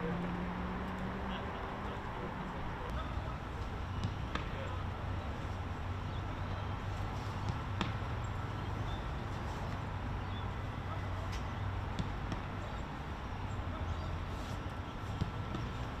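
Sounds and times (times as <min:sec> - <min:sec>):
footballs being struck: 0:03.9 - 0:04.9, 0:07.4 - 0:09.0, 0:11.8 - 0:12.6, 0:15.1 - 0:15.8.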